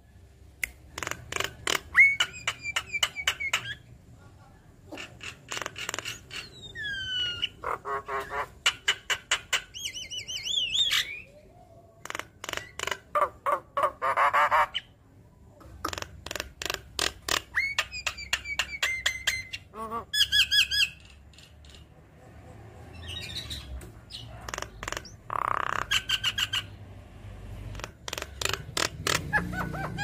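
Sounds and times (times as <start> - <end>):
bird singing varied song: 9.7 - 12.8.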